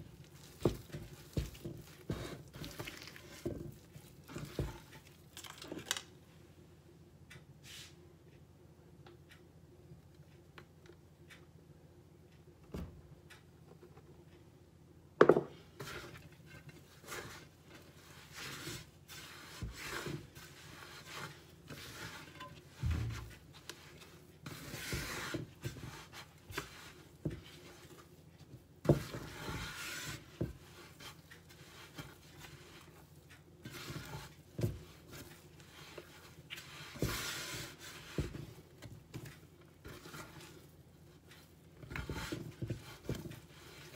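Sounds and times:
dough kneading by hand: 0:00.0 - 0:06.2, 0:15.2 - 0:43.9.

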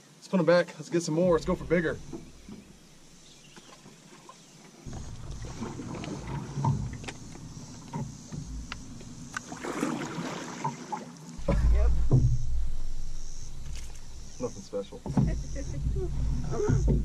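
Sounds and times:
low rumble: 0:01.2 - 0:03.4, 0:04.9 - 0:09.5, 0:11.4 - 0:17.0
paddle knocking on metal hull: 0:01.4 - 0:03.2, 0:04.9 - 0:10.8, 0:11.4 - 0:17.0
paddle strokes in water: 0:01.4 - 0:12.6, 0:13.2 - 0:17.0.

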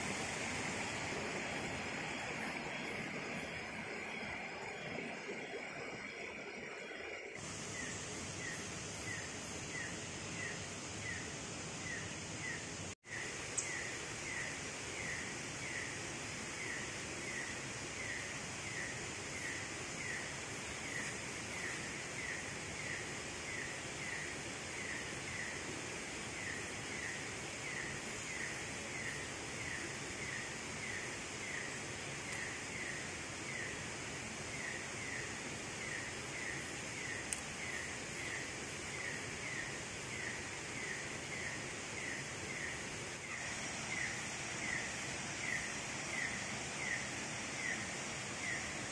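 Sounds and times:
hiss of insects: 0:00.0 - 0:48.9.

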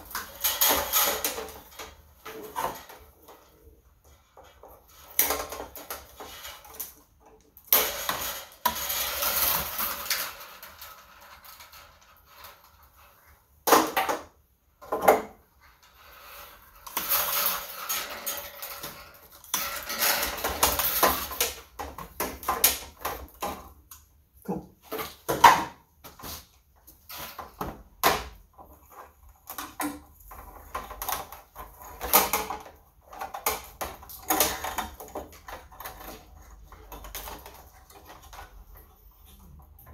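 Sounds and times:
cable rustling and scraping: 0:00.0 - 0:39.9.

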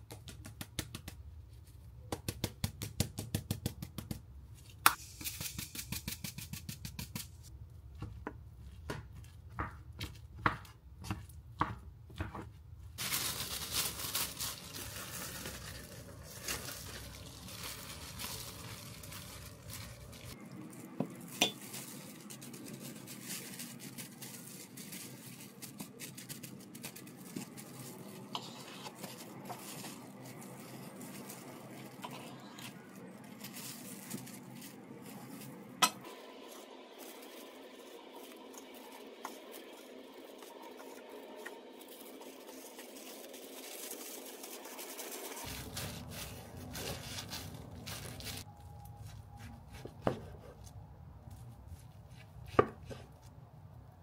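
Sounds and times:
utensils clinking against dishes: 0:21.4 - 0:21.8.

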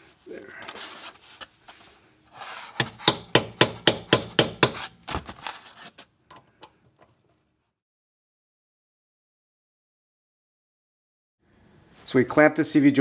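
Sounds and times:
metal-on-metal tool taps: 0:02.8 - 0:04.8.

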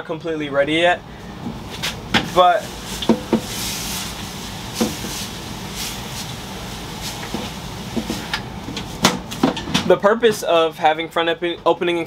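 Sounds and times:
steady hiss: 0:01.0 - 0:09.4.

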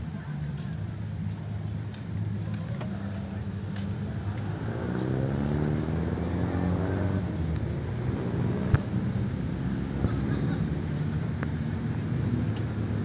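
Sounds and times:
traffic noise: 0:00.0 - 0:13.0
vehicle engine hum: 0:00.0 - 0:13.0.

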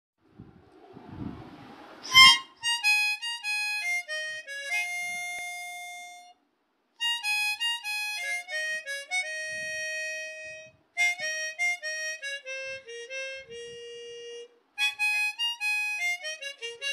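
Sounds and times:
descending melody: 0:08.4 - 0:14.5.

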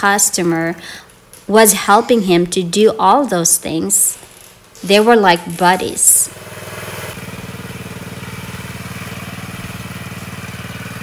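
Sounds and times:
small gas engine running: 0:06.0 - 0:11.0.

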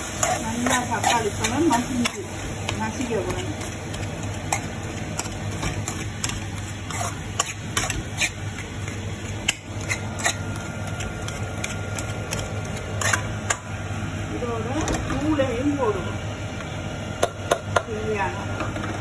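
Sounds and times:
metal spoon scraping a pan: 0:00.0 - 0:13.6
steady low hum: 0:00.0 - 0:19.0.

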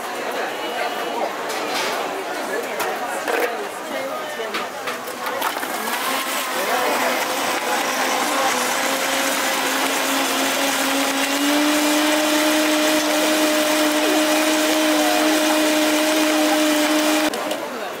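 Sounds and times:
blender motor whine: 0:05.5 - 0:17.4.

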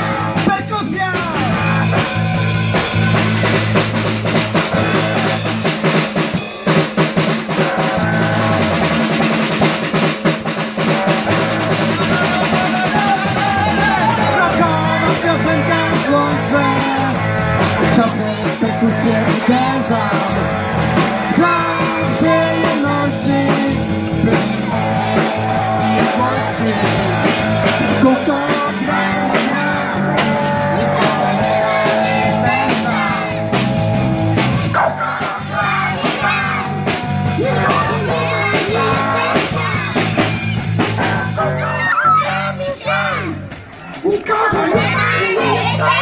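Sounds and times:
drums: 0:00.0 - 0:46.0
electric guitar: 0:01.1 - 0:43.8
children singing into microphones: 0:13.6 - 0:17.3, 0:17.9 - 0:46.0.

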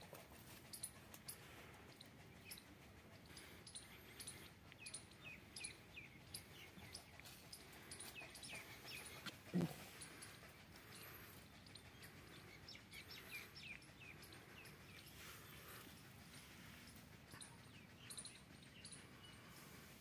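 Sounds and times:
small birds chirping: 0:00.0 - 0:20.0
low animal call: 0:08.6 - 0:16.0.

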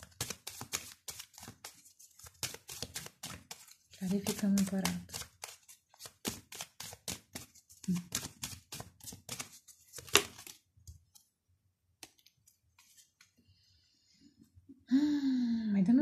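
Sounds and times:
cards being shuffled: 0:00.0 - 0:11.3, 0:12.0 - 0:13.4.

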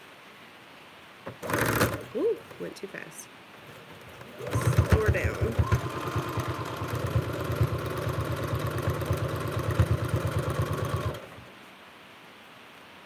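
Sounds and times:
sewing machine stitching: 0:01.3 - 0:02.6, 0:03.6 - 0:11.5.

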